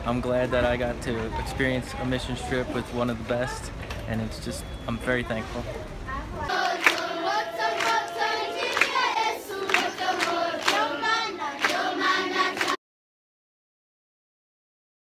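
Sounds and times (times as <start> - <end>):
children singing in chorus: 6.5 - 12.8
hand claps: 6.6 - 11.0, 11.6 - 12.8.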